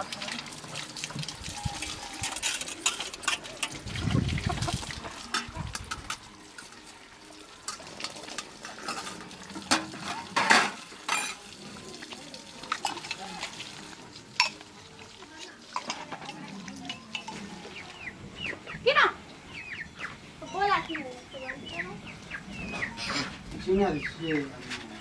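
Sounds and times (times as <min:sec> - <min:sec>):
water running from spout: 0:00.0 - 0:18.2
metal dishes clinking: 0:02.2 - 0:03.8, 0:05.2 - 0:06.8, 0:07.6 - 0:11.5, 0:14.4 - 0:14.6, 0:15.7 - 0:17.6.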